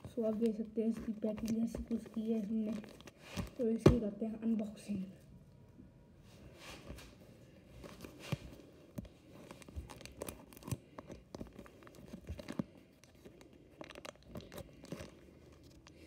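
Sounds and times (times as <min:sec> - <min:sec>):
plastic mailer bag crinkling: 0:00.0 - 0:03.7, 0:09.2 - 0:16.0.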